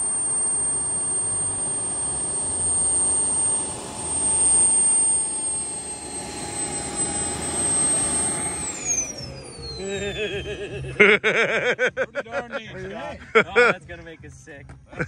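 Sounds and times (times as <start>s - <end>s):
model jet turbine whine: 0.0s - 11.4s.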